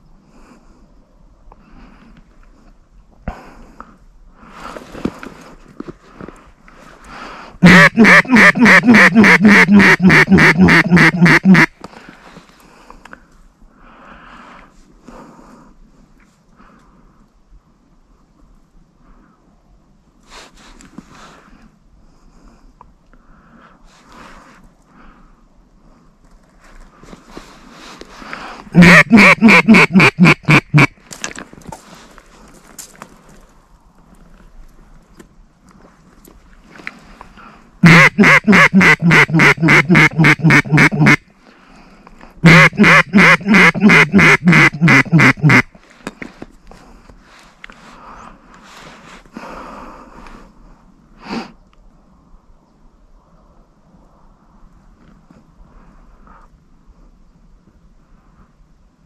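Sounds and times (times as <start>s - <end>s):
duck call quacks: 7.6s - 11.7s, 28.8s - 31.0s, 37.8s - 41.3s, 42.4s - 45.8s.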